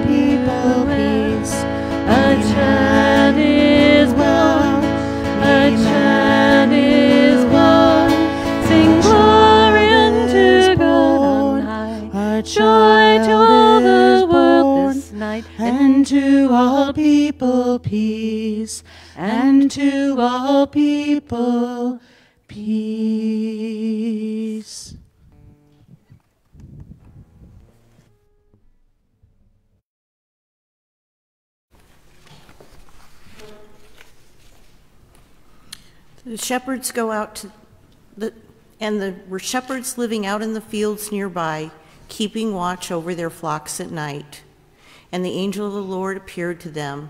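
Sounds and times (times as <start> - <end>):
strummed acoustic guitar: 0.0 - 16.7
woman singing: 0.0 - 25.0.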